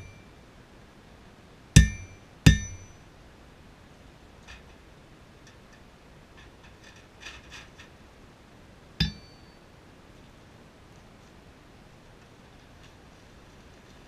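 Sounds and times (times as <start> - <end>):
hammer ringing on anvil: 0.0 - 0.3, 1.8 - 3.0, 9.0 - 9.6.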